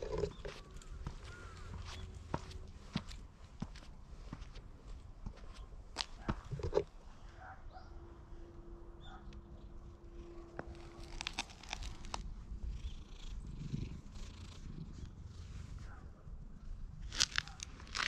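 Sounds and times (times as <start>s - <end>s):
cat purring: 12.5s - 16.9s.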